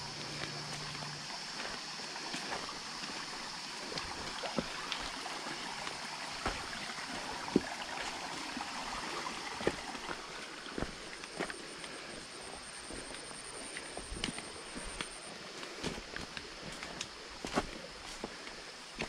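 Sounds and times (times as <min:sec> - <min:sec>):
high-pitched insect drone: 0:00.0 - 0:15.4
stream trickling over rocks: 0:00.0 - 0:19.0
footfalls on stones: 0:06.4 - 0:08.1.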